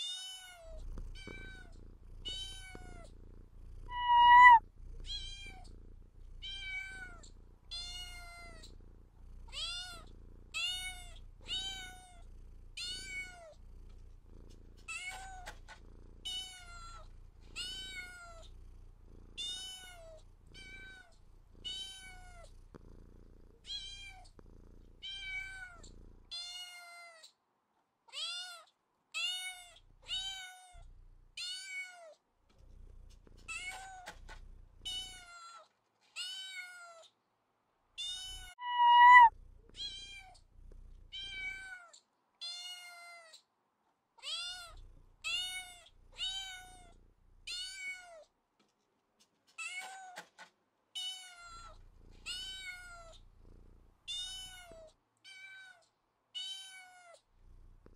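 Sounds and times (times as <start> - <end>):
low steady background noise: 0.0 - 57.9
cat meowing: 3.9 - 4.6, 38.1 - 40.2.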